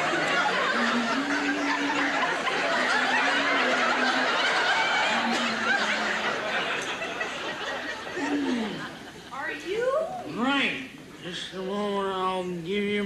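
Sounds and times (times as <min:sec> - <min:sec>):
audience laughing: 0:00.0 - 0:09.4.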